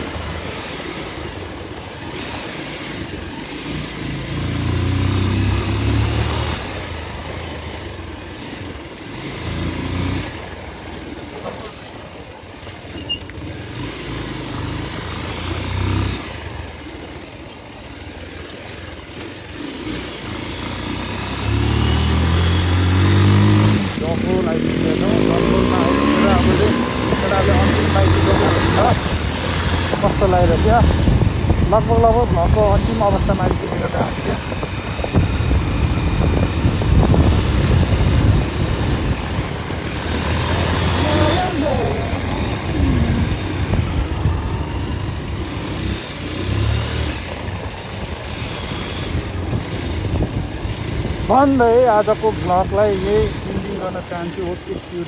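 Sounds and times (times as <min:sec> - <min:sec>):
motorcycle engine running: 0:00.0 - 0:55.0
wind and road noise: 0:00.0 - 0:55.0
wind noise on microphone: 0:25.6 - 0:41.0, 0:41.8 - 0:45.4, 0:47.9 - 0:51.3.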